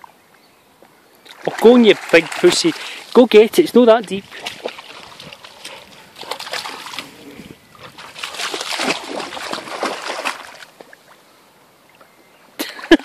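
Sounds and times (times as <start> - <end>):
dog splashing through water: 1.3 - 11.0.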